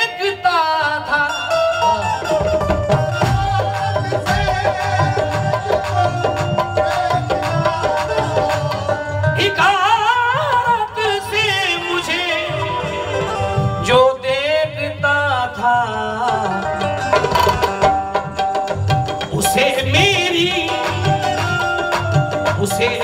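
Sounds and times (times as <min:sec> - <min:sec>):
tabla rhythm: 0:00.0 - 0:23.0.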